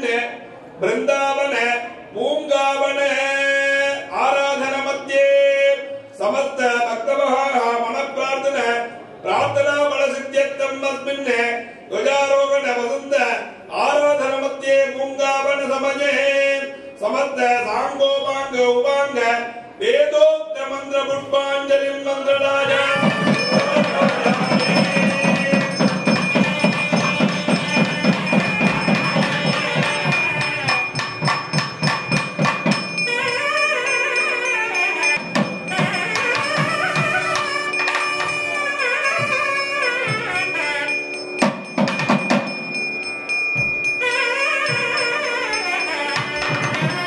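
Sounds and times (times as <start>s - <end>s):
fast even drumming: 22.6s - 33.8s, 35.0s - 40.6s, 41.4s - 47.0s
high bell-like ringing tone: 22.7s - 47.0s.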